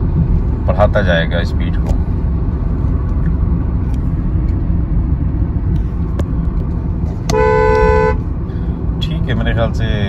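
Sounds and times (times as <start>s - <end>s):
car cabin engine and road noise: 0.0s - 10.0s
car horn: 7.2s - 8.3s.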